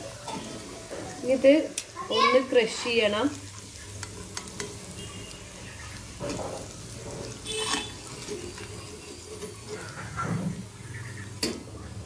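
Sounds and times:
chicken sizzling in hot oil: 0.0s - 12.0s
metal spatula clicking on pan: 4.0s - 4.8s.

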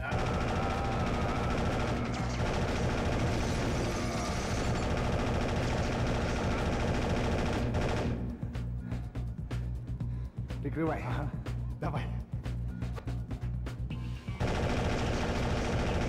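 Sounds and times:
automatic rifle fire: 0.1s - 8.3s, 14.4s - 16.0s.

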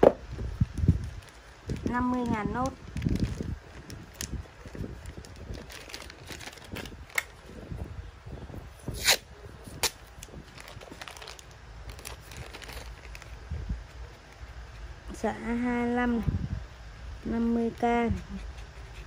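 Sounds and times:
plastic bags crinkling: 0.7s - 7.5s, 9.8s - 13.6s.

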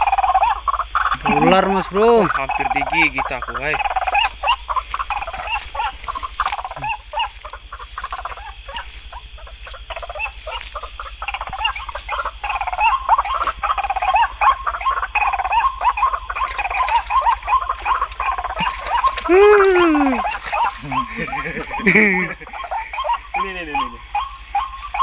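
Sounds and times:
frogs croaking: 0.0s - 25.0s.

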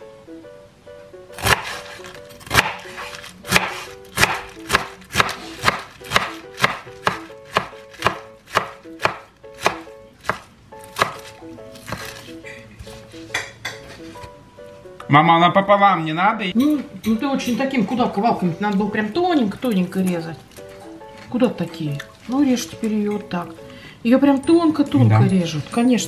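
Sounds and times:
light plucked background music: 0.0s - 26.0s
knife chopping on cutting board: 1.4s - 14.3s.

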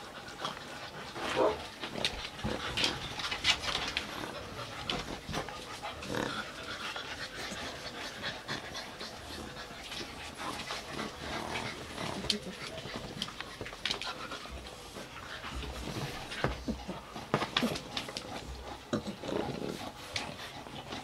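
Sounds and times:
puppies panting: 0.0s - 21.0s.

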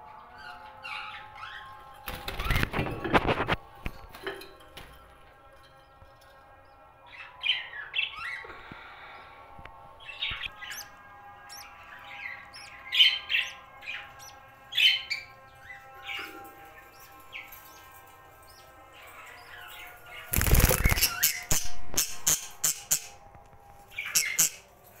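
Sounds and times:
budgerigars chirping: 11.5s - 15.3s
sharp clicks and scrapes: 20.3s - 23.6s.

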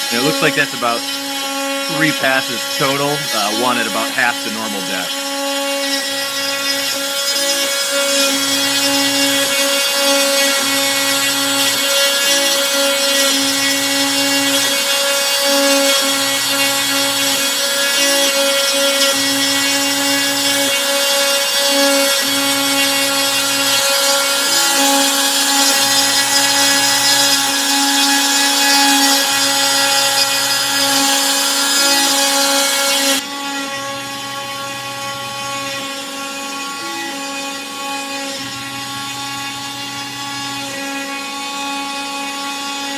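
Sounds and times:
stepper motors humming: 0.0s - 18.1s
router whining while cutting: 0.0s - 42.9s.

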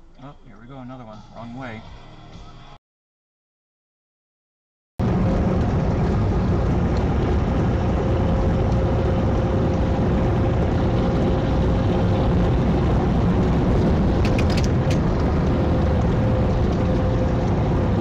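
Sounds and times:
truck engine and road rumble: 5.0s - 18.0s.

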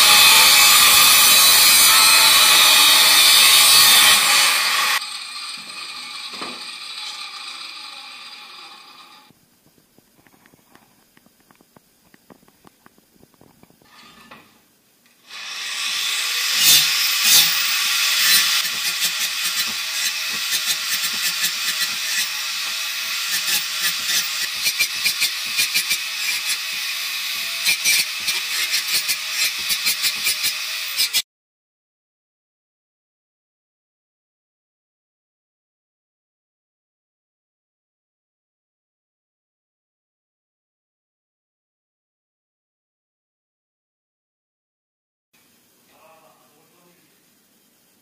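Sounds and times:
angle grinder cutting steel: 0.0s - 9.3s, 15.2s - 31.2s.

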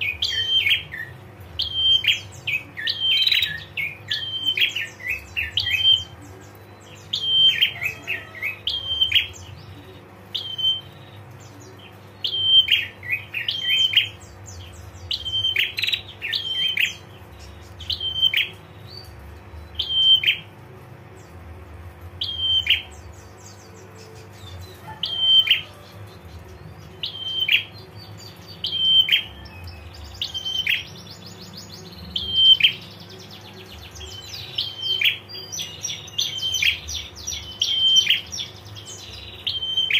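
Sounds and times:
low steady hum: 0.0s - 39.9s.

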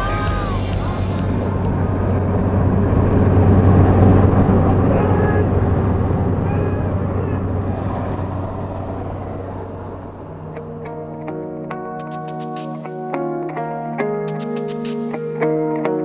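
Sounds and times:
wind rushing through open door: 0.0s - 10.9s
airplane engine droning: 0.0s - 13.7s.

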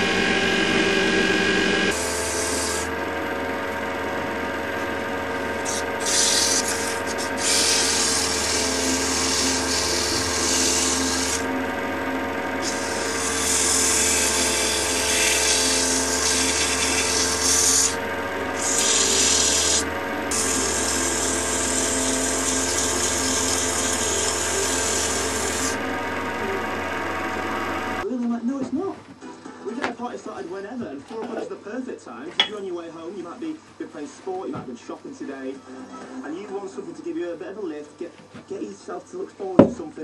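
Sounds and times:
wood lathe motor hum: 0.0s - 28.0s
sandpaper rasping on wood: 5.5s - 11.5s, 12.6s - 25.8s.

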